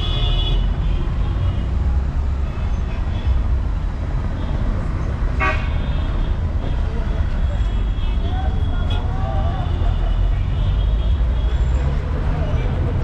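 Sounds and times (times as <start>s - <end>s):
vehicle rumble in traffic: 0.0s - 13.0s.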